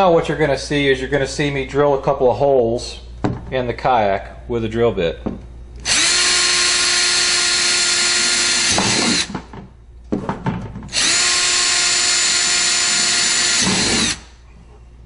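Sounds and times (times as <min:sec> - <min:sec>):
electric drill whining: 0:05.8 - 0:09.3, 0:10.9 - 0:14.4.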